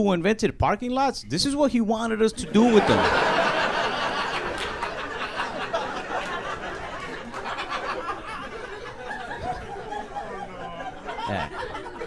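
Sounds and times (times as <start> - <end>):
audience laughing: 2.4 - 12.0.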